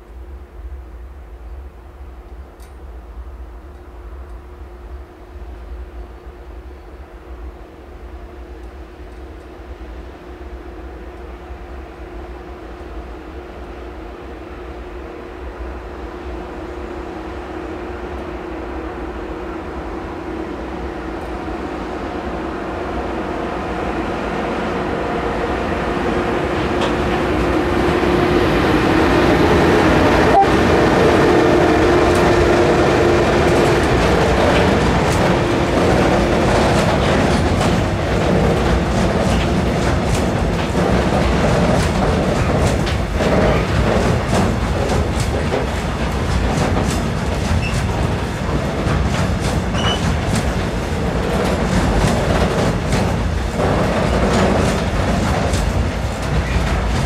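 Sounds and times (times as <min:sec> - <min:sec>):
train passing with steady hum: 0:00.0 - 0:57.0
wheels clattering over rail joints: 0:33.0 - 0:57.0.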